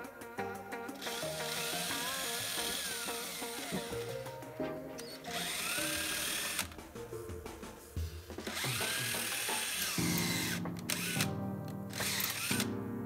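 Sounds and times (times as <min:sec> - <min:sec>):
background music: 0:00.0 - 0:13.0
cordless drill boring into metal: 0:01.0 - 0:04.1, 0:05.0 - 0:06.7, 0:08.5 - 0:11.3, 0:12.0 - 0:12.7.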